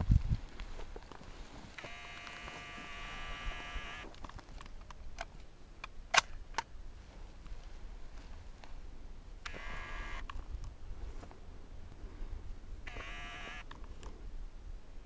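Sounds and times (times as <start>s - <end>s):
camcorder zoom motor whining: 1.8s - 4.1s, 9.5s - 10.2s, 12.9s - 13.7s.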